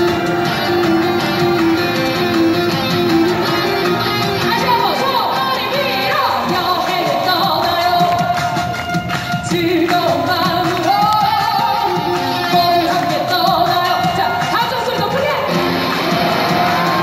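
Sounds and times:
electric violin: 0.0 - 14.4
live pop band: 0.0 - 17.0
woman singing into a microphone: 4.6 - 8.5, 9.3 - 15.4.

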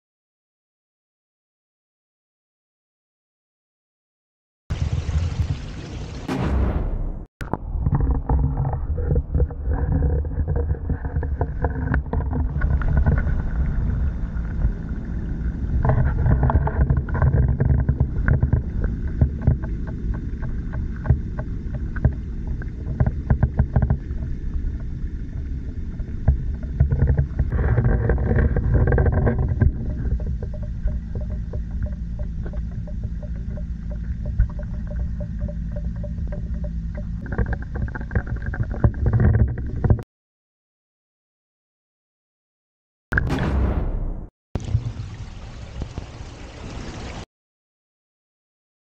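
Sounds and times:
muffled underwater rumble: 4.8 - 40.0
small underwater clicks and knocks: 7.4 - 15.0, 15.7 - 40.0.

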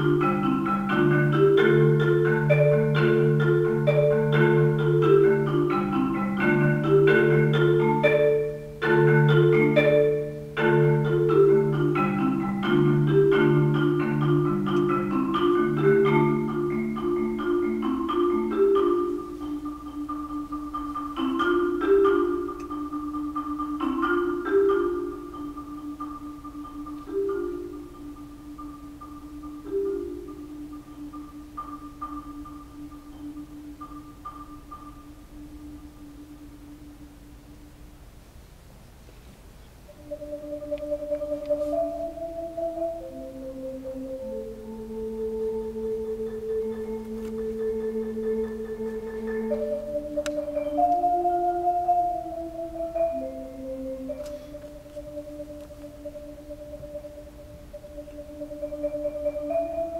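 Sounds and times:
solo marimba: 0.0 - 38.0, 39.8 - 59.9.

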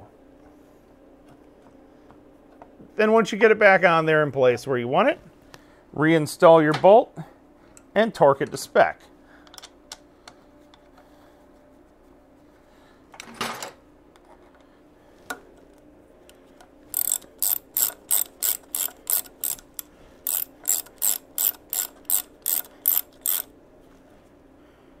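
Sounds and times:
ratchet clicking: 16.9 - 23.5.

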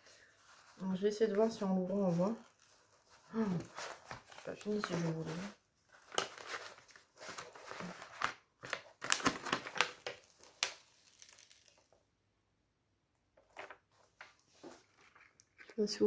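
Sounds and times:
paper sheet peeling and crinkling: 2.1 - 11.9.

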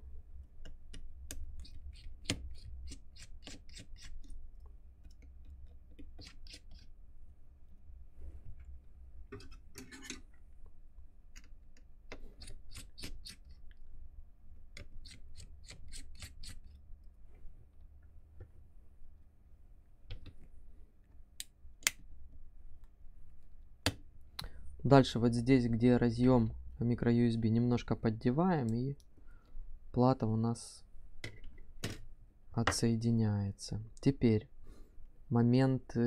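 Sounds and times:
screwdriver clicking and scraping: 9.4 - 10.4, 11.3 - 13.6, 14.8 - 16.8.

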